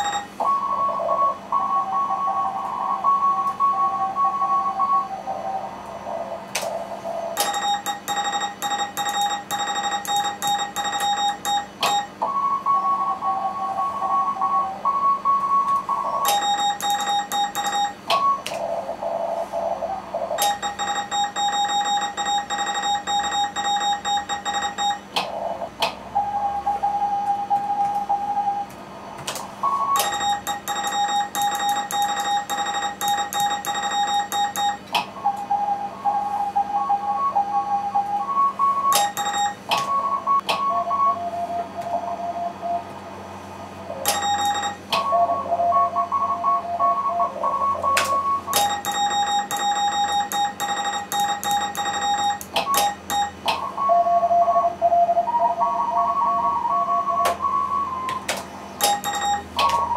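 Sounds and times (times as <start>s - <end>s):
morse code from receiver: 0.0s - 0.5s, 7.4s - 12.1s, 15.3s - 18.0s, 20.4s - 25.1s, 29.7s - 34.9s, 38.9s - 40.4s, 44.1s - 45.0s, 47.8s - 53.6s, 58.8s - 59.9s
morse code sidetone beeps: 0.0s - 5.1s, 7.4s - 18.4s, 20.4s - 25.1s, 29.6s - 42.8s, 44.0s - 59.9s.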